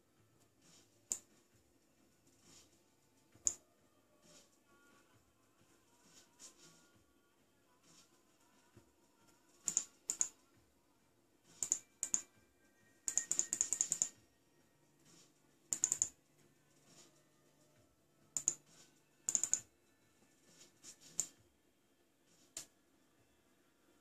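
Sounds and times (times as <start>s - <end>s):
computer mouse clicks: 1.1s - 1.3s, 3.4s - 3.6s, 9.6s - 10.4s, 11.5s - 12.3s, 13.0s - 14.2s, 15.7s - 16.2s, 18.4s - 19.7s, 21.0s - 21.4s.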